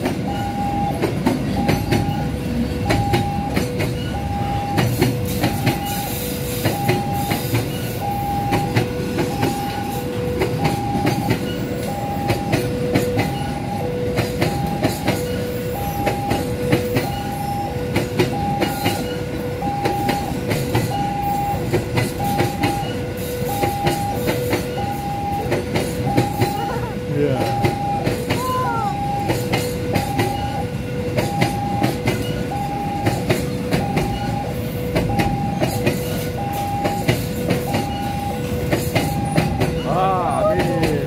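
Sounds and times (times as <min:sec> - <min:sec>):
train wagons rumbling past: 0:00.0 - 0:41.0
two-tone crossing alarm: 0:00.0 - 0:41.0
wheels clacking over rail joints: 0:27.3 - 0:41.0.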